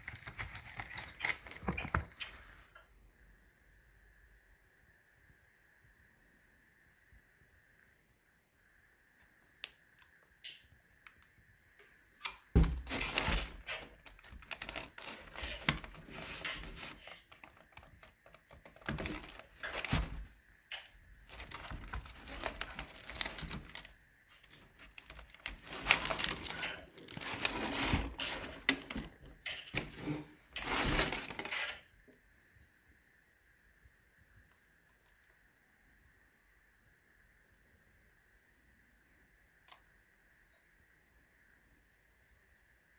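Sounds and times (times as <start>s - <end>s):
packing paper rustling: 0.0s - 2.2s, 12.5s - 31.7s.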